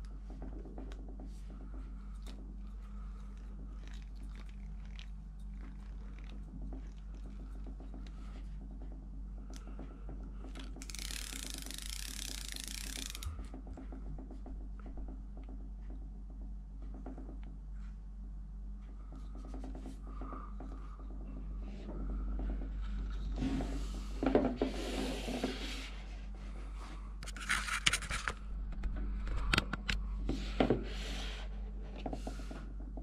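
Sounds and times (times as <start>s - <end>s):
fishing reel gearing ticking: 10.6s - 13.5s.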